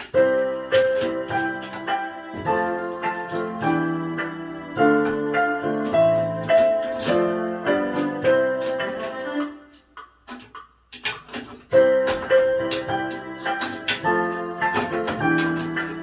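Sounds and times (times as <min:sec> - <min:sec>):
clicks: 0:00.0 - 0:16.0
electronic keyboard melody: 0:00.0 - 0:16.0.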